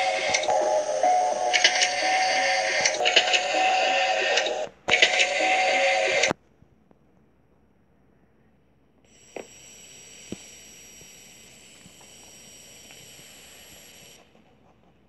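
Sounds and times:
videotape hiss with high whine: 0:00.0 - 0:06.5, 0:08.4 - 0:14.5.

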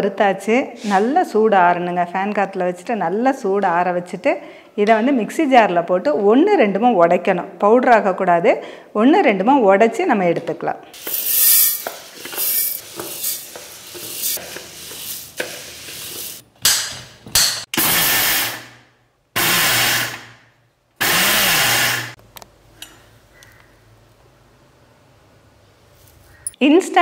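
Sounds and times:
grains rattling into steel jar: 0:11.0 - 0:15.4
electric mixer grinder running: 0:17.8 - 0:18.8, 0:19.4 - 0:20.4, 0:21.0 - 0:22.2.

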